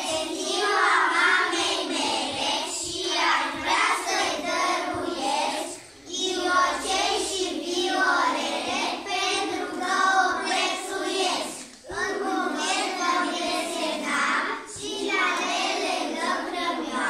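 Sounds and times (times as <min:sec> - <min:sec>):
children singing in unison: 0:00.0 - 0:17.0.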